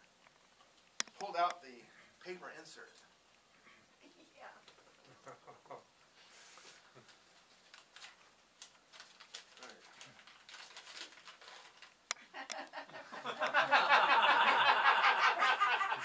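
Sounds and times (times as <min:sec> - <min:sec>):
paper rustling and crinkling: 0:06.4 - 0:12.0
sharp paper crackle: 0:06.8 - 0:12.1.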